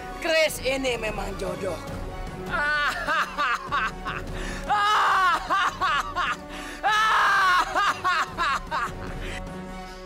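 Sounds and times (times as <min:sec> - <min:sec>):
background music: 0:00.0 - 0:10.0
man laughing loudly: 0:02.5 - 0:04.3, 0:04.9 - 0:06.4, 0:07.3 - 0:09.2.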